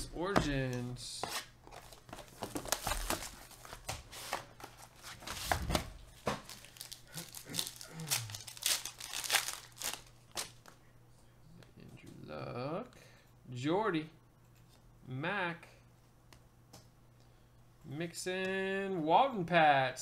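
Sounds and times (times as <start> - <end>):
foil pack crinkling and tearing: 6.4 - 10.6.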